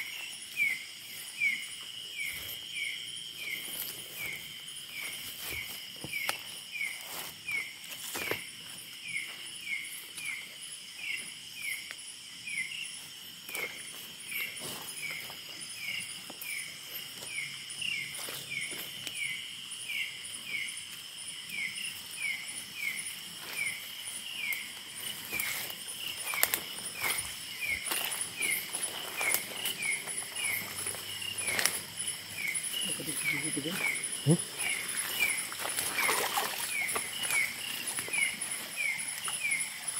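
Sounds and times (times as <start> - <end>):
crickets trilling: 0.0 - 39.9
footsteps rustling through grass: 25.0 - 32.5, 33.8 - 39.5.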